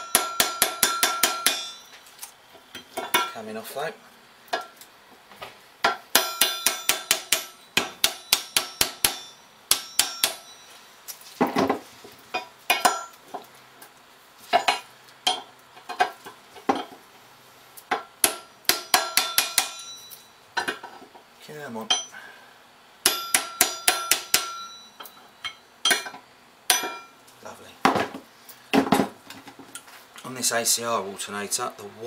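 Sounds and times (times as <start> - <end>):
hammer striking steel punch: 0.0 - 1.9, 5.9 - 10.6, 18.0 - 20.1, 23.0 - 27.1.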